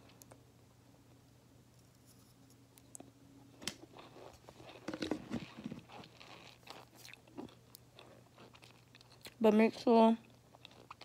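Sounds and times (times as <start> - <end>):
crunching and chewing: 3.7 - 9.4, 10.2 - 11.0.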